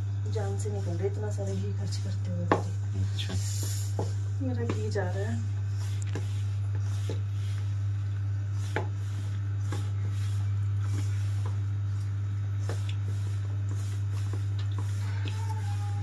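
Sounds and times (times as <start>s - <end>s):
steady low hum: 0.0s - 16.0s
hand kneading dough in metal bowl: 0.3s - 16.0s.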